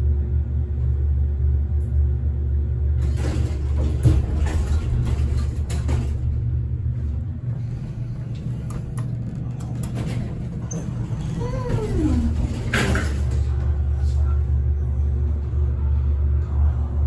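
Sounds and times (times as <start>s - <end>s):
elevator hum: 0.0s - 17.0s
elevator doors sliding open: 3.0s - 15.6s.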